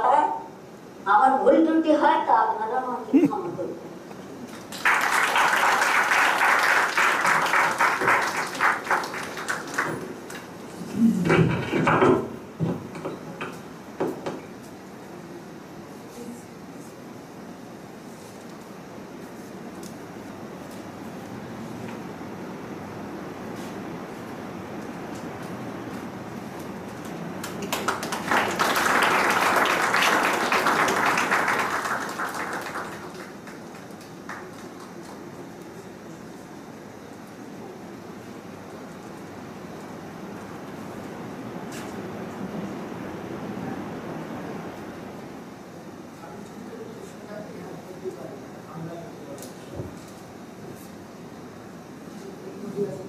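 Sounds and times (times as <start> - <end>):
audience applauding: 4.6 - 10.5, 27.4 - 35.5.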